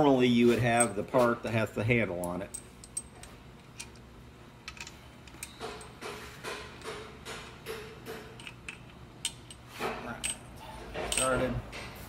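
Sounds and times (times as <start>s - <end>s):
small metal clicks: 2.2s - 5.9s.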